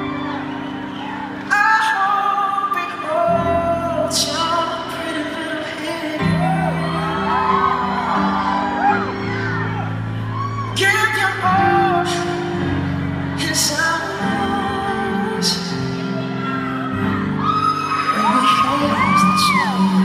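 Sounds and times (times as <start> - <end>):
crowd screaming and cheering: 0.0 - 20.0
man singing into a microphone: 1.5 - 8.0, 10.7 - 20.0.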